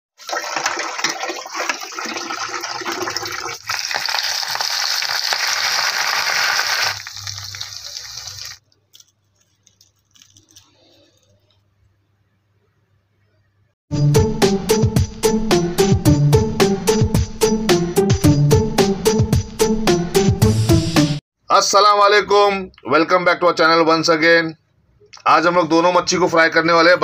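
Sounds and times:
hands splashing fish in water: 0:00.2 - 0:09.1
fish sizzling in hot oil: 0:03.5 - 0:08.6.

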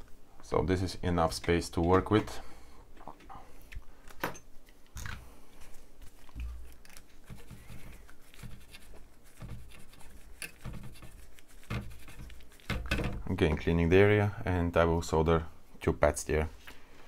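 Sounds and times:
hand tools clicking and scraping: 0:06.3 - 0:13.2.

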